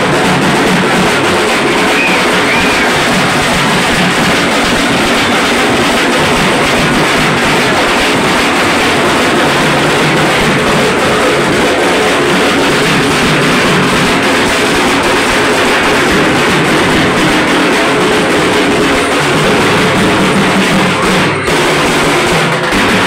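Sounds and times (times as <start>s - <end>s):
fast loud drumming: 0.0s - 23.0s.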